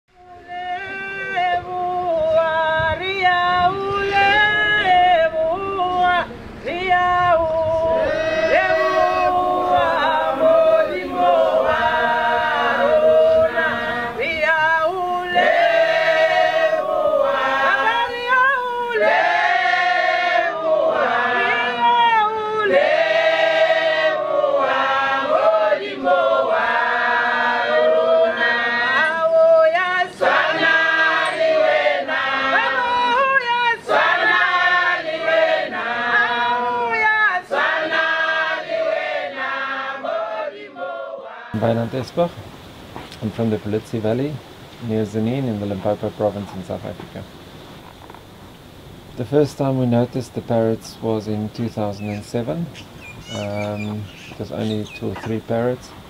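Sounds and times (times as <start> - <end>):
choir singing: 0.2 - 42.3.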